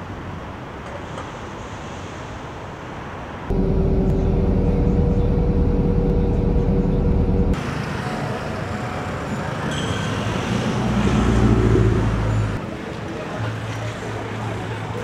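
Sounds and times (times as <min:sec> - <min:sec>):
street noise: 0:00.0 - 0:15.0
bus engine running: 0:03.5 - 0:09.6
motor vehicle passing: 0:10.2 - 0:12.6.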